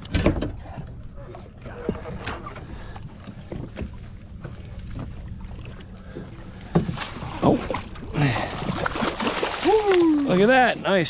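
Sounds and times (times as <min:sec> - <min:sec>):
water rumbling against hull: 0:00.0 - 0:11.0
knocks on boat: 0:06.7 - 0:07.1.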